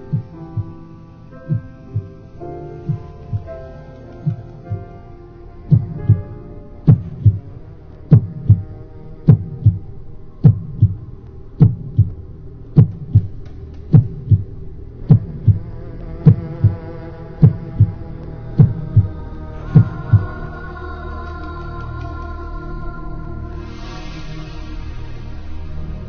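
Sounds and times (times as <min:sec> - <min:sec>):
heartbeat thumps: 0:00.0 - 0:00.8, 0:01.5 - 0:02.2, 0:02.8 - 0:03.6, 0:04.2 - 0:05.0, 0:05.7 - 0:12.2, 0:12.8 - 0:20.4
sustained musical drone: 0:00.0 - 0:26.0.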